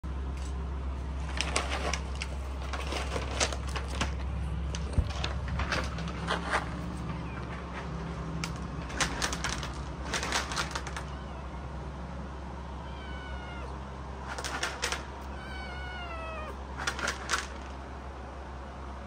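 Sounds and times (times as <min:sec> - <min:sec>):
cat meowing: 0:07.0 - 0:07.7, 0:10.7 - 0:11.9, 0:12.6 - 0:13.9, 0:15.2 - 0:16.6.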